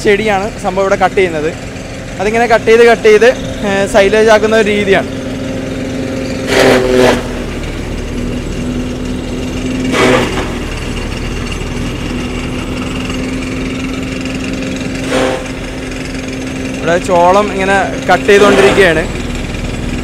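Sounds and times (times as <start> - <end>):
chaff cutter chopping stalks: 5.6 - 10.8, 13.6 - 20.0.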